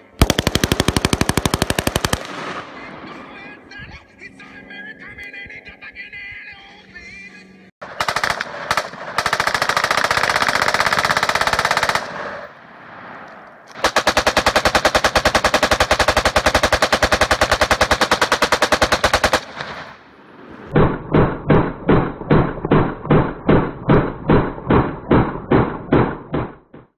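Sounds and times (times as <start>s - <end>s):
rapid rifle fire: 0.2s - 3.2s, 7.8s - 12.6s, 13.7s - 20.0s, 20.7s - 26.8s.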